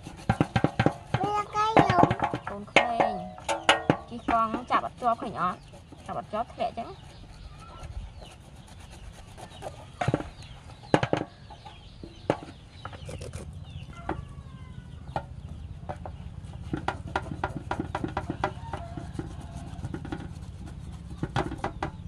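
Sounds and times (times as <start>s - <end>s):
chickens clucking: 0.0s - 22.0s
knocks against metal basin: 0.3s - 4.8s, 10.9s - 12.6s, 15.2s - 20.4s, 21.1s - 22.0s.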